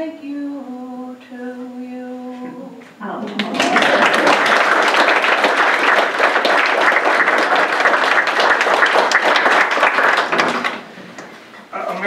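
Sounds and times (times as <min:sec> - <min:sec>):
people applauding: 0:03.2 - 0:11.2.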